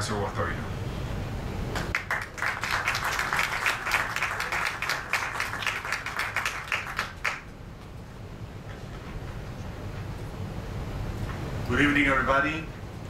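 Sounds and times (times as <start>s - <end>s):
audience applauding: 1.8s - 7.5s.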